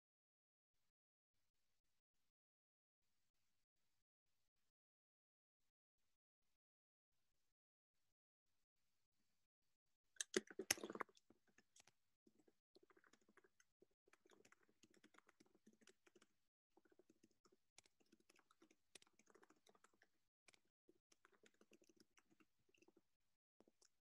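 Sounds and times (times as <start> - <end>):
faint keyboard typing: 10.2 - 23.0.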